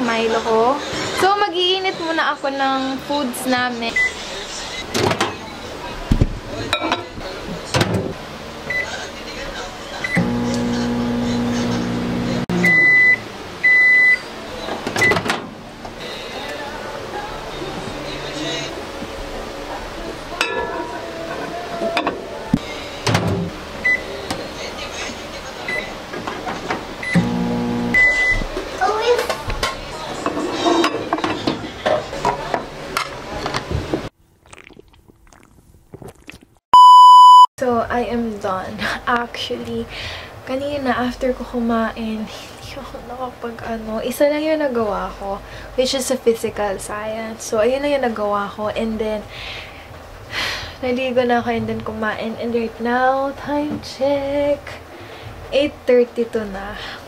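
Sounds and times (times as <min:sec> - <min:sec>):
microwave oven humming: 0:08.7 - 0:14.1, 0:27.0 - 0:28.6
long beeps: 0:36.8 - 0:37.5.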